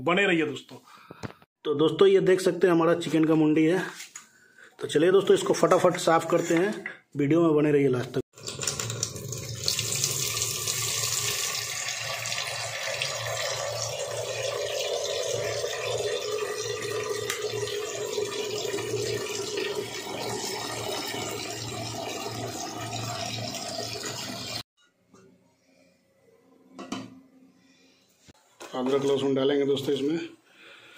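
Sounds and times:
tap water pouring into metal pot: 8.4s - 24.6s.

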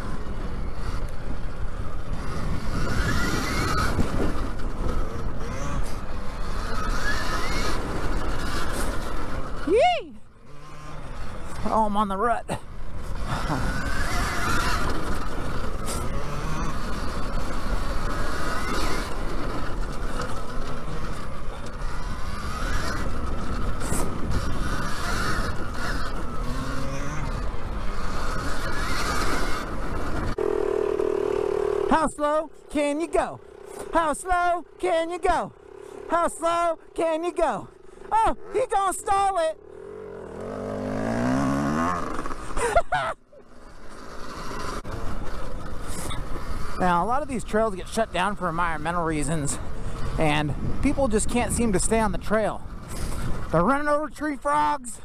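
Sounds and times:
rushing wind: 0.0s - 11.8s, 12.5s - 30.7s, 44.1s - 54.0s
trail noise: 0.0s - 55.0s
electric motor whine: 13.0s - 32.7s.

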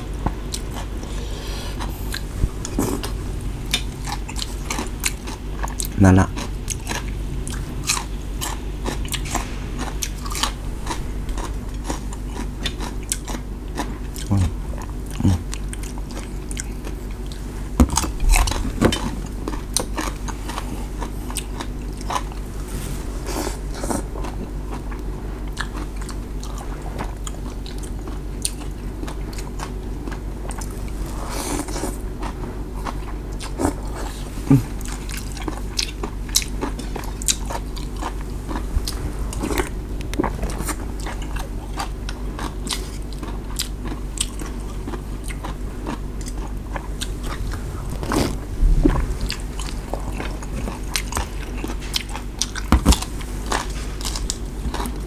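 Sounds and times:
steady low hum: 0.0s - 55.0s
chewing: 0.2s - 22.5s, 23.2s - 55.0s
slurping noodles: 47.0s - 50.8s.

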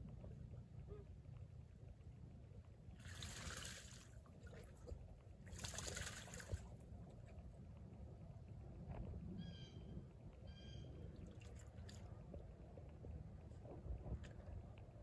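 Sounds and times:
faint low rumble: 0.0s - 15.0s
water splashing and sloshing: 3.0s - 7.4s, 11.1s - 12.5s.

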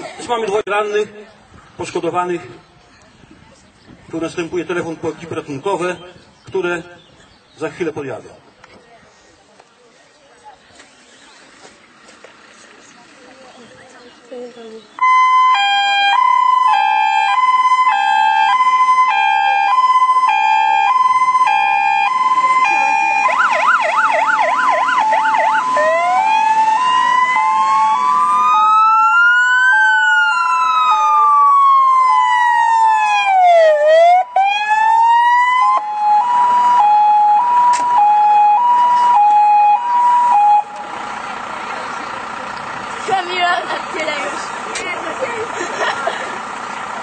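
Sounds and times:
fire engine siren: 15.0s - 41.5s.

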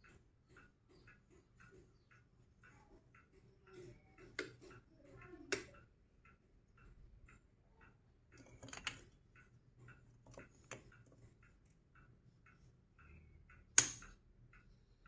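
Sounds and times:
faint regular ticking: 0.0s - 15.0s
magnetic toy pieces clicking together: 8.3s - 11.0s, 13.8s - 14.2s.

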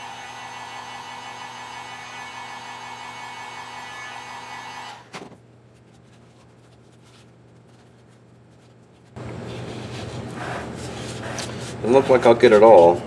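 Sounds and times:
heat gun whirring: 0.0s - 5.2s.

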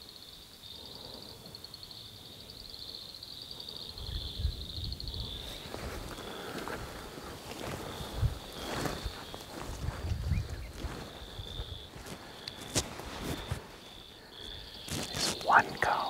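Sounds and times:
frogs trilling: 0.1s - 16.0s
footsteps through brush: 5.5s - 16.0s.

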